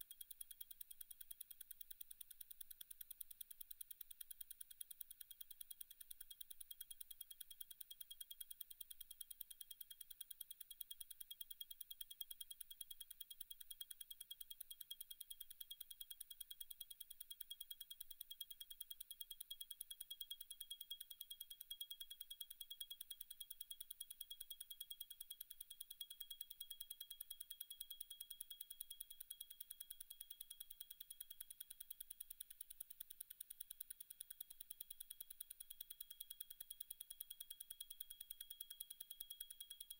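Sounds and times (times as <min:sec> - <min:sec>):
watch movement ticking: 0:27.8 - 0:39.9.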